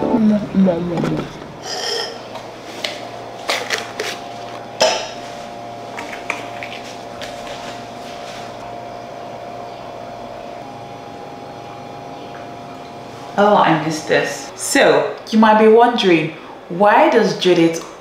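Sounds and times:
glass clinking: 1.6s - 2.3s.

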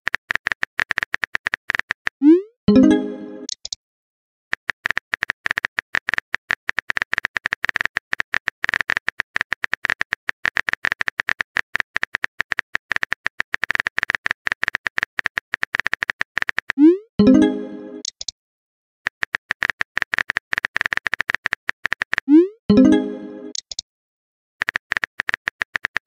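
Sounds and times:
phone keyboard clicks: 4.6s - 16.8s.

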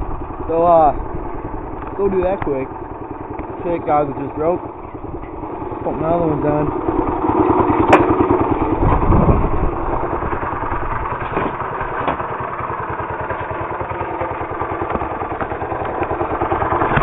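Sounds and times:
mini bike engine idling: 0.0s - 17.0s.

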